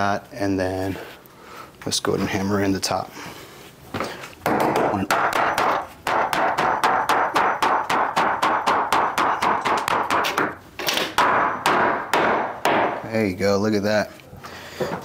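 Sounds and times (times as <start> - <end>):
hammer striking wood stud: 4.4 - 13.0.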